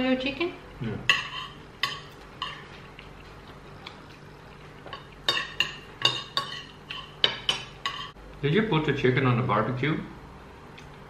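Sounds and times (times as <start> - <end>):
cutlery clinking on plates: 1.1 - 2.8, 4.9 - 8.2.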